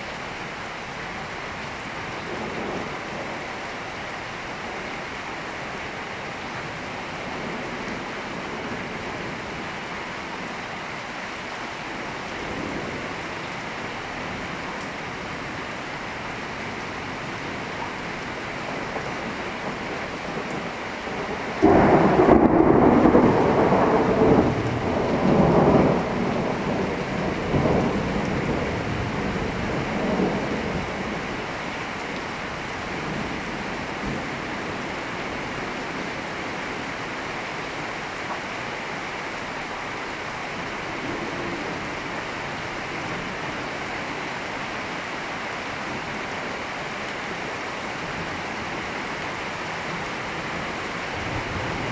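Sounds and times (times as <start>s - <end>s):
steady rain: 0.0s - 51.9s
thunder rumbling: 18.7s - 31.7s, 51.1s - 51.9s.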